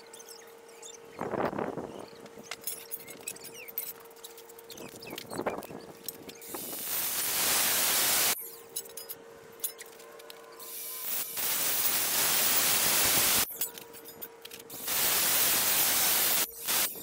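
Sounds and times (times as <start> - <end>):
angle grinder cutting steel: 10.7 - 13.5, 14.7 - 17.0.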